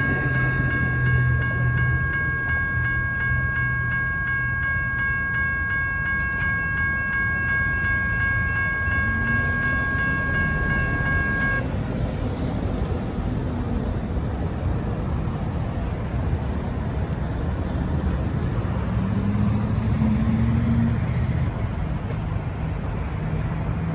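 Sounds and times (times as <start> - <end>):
departing train rumble: 0.0 - 11.6
railroad crossing bell ringing: 0.0 - 11.7.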